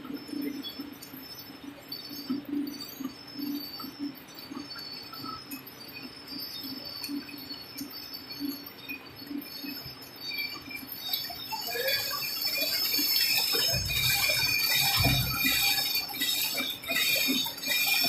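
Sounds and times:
machine high whine: 2.1 - 18.0
machine low beat: 13.6 - 15.9.

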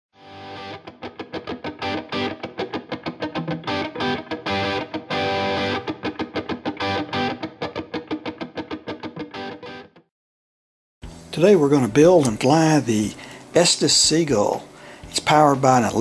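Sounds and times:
guitar riff: 0.2 - 10.1.

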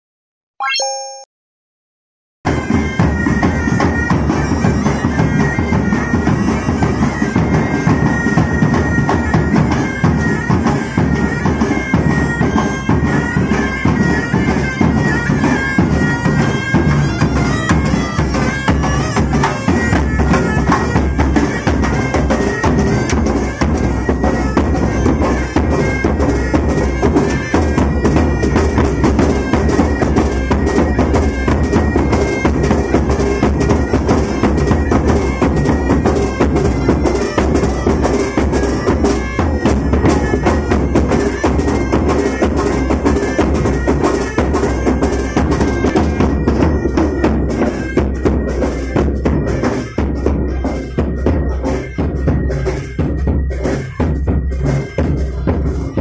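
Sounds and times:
bagpipes playing marching tune: 2.5 - 56.0
bass drum beating: 50.2 - 56.0.

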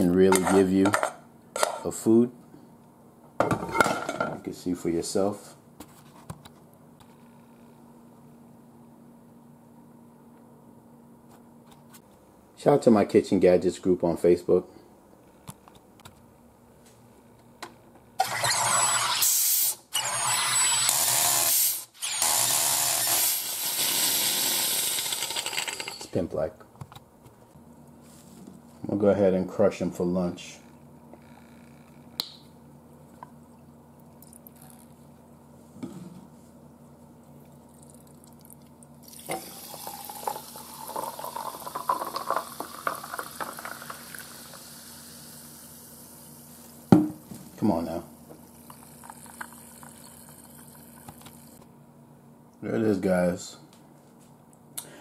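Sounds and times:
soda maker gas hissing: 18.3 - 19.8, 20.8 - 26.2, 39.1 - 47.0, 48.4 - 51.6
water pouring into a glass: 37.8 - 45.2, 48.6 - 51.2.

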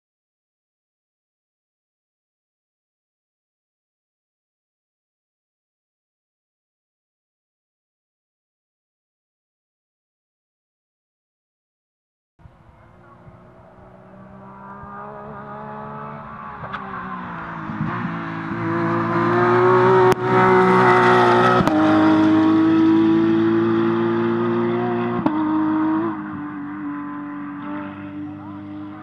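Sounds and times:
rally car engine revving hard: 13.0 - 29.0
sharp cracks from car: 16.6 - 17.0.

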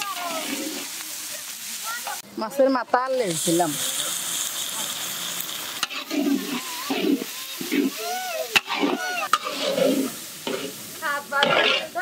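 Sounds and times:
food sizzling: 0.0 - 12.0
metal spatula scraping pan: 5.8 - 8.0, 8.6 - 10.8, 11.4 - 12.0.

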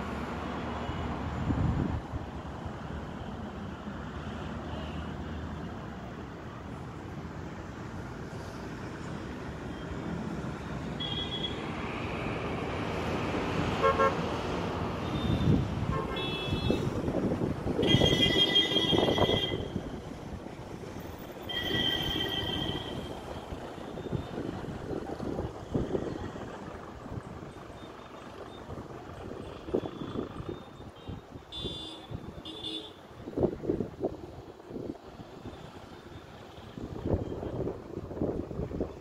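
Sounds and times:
road traffic: 0.0 - 39.0
vehicle horns honking: 11.0 - 11.6, 13.8 - 14.2, 15.1 - 17.0, 17.8 - 19.8, 21.5 - 23.2, 30.9 - 33.0.

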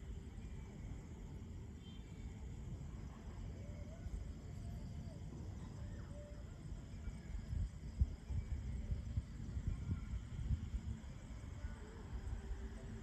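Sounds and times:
wind buffeting microphone: 7.2 - 12.9.

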